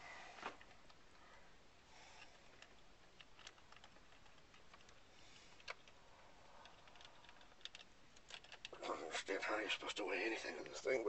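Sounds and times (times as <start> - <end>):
faint clicks and taps: 2.2 - 8.8.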